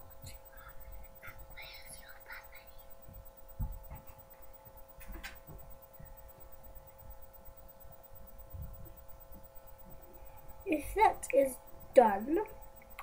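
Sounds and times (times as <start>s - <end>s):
steady electrical hum: 0.0s - 13.0s
microphone handling thumps: 3.0s - 4.4s, 5.0s - 6.6s, 8.4s - 10.0s.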